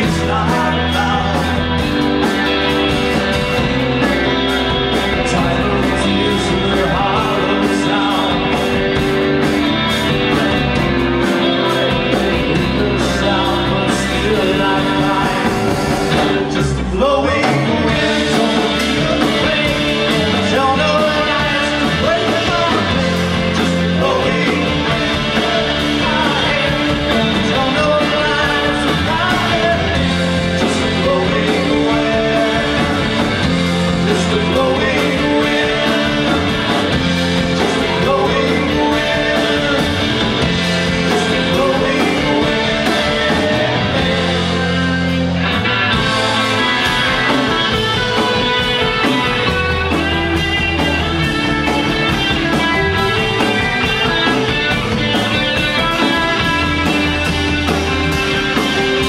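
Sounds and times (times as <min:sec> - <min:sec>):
person singing: 0:00.0 - 0:02.0, 0:03.4 - 0:45.2
drum kit: 0:00.0 - 0:59.0
electric guitars: 0:00.0 - 0:59.0.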